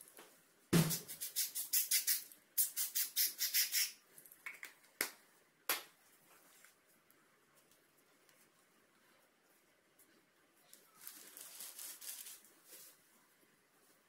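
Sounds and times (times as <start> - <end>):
spray bottle hissing puffs: 0.8 - 4.0.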